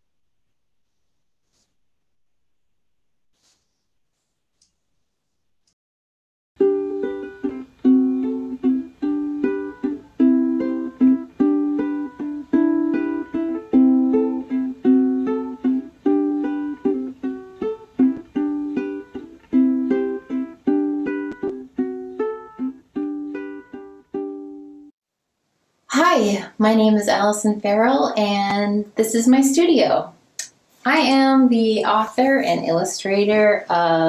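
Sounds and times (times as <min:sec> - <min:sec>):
upbeat plucked string music: 0:06.6 - 0:24.9.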